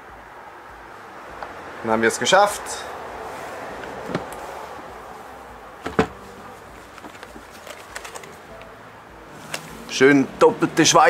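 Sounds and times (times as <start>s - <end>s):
plastic bag crinkling: 6.8s - 8.4s.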